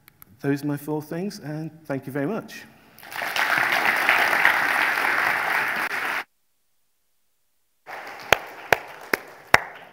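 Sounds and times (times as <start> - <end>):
audience applauding: 3.0 - 6.3, 7.9 - 9.9.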